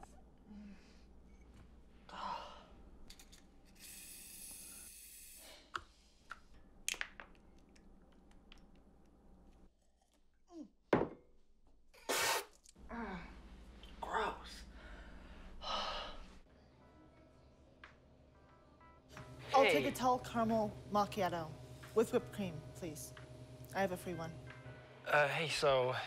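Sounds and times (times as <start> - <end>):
mug knocking on counter: 10.9 - 11.2
short hiss: 12.1 - 12.5.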